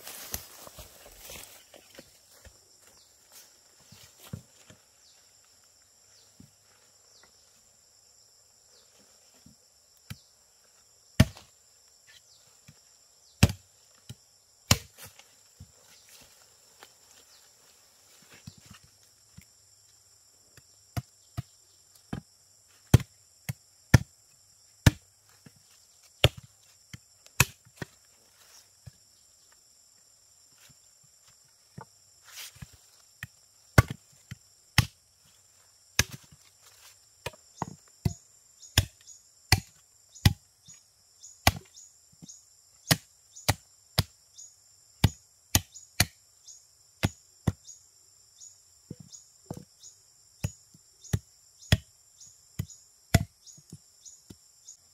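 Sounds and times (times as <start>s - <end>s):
insects droning: 0.0s - 54.9s
chopping wood: 11.2s - 11.5s, 13.4s - 15.2s, 22.9s - 24.1s, 24.8s - 25.0s, 26.2s - 26.5s, 27.3s - 28.0s, 33.2s - 34.1s, 34.8s - 35.0s, 36.0s - 36.4s, 37.2s - 40.4s, 41.4s - 41.7s, 42.8s - 44.1s, 45.0s - 46.2s, 47.0s - 47.6s, 50.4s - 51.9s, 52.6s - 53.8s.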